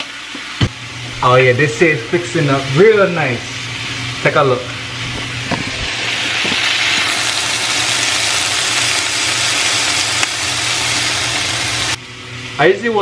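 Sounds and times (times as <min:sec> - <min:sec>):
vegetables sizzling in oil: 0:05.2 - 0:12.0.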